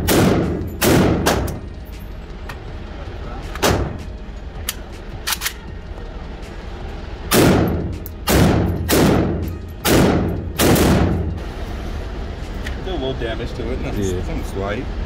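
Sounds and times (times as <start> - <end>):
reverberant gunshots: 0.0 - 1.7, 7.3 - 11.3.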